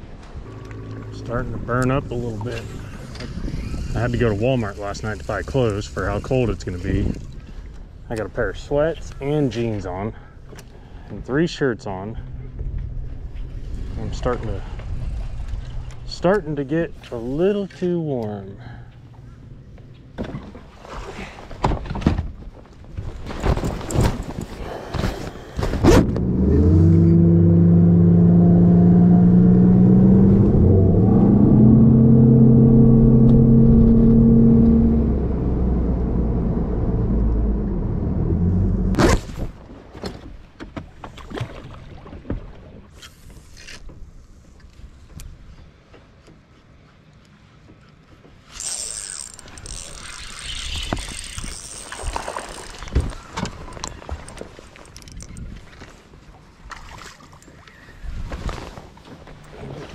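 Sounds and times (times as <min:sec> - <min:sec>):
outboard motor running: 0:00.2 - 0:07.1, 0:26.0 - 0:39.0, 0:48.6 - 0:54.4.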